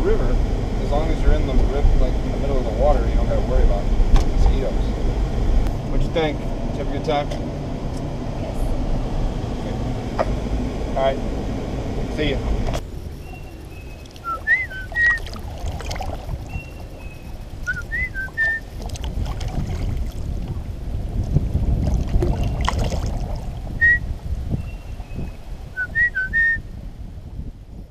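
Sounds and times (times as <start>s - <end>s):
low rumble: 0.0s - 27.9s
whistled notes: 13.2s - 15.4s, 16.5s - 18.8s, 23.7s - 26.7s.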